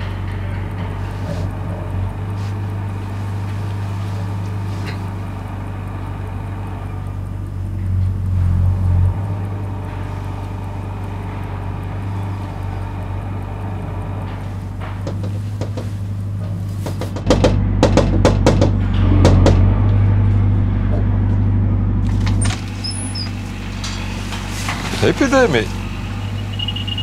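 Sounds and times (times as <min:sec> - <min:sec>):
faint clicks: 0:00.0 - 0:17.2
low droning hum: 0:00.0 - 0:27.0.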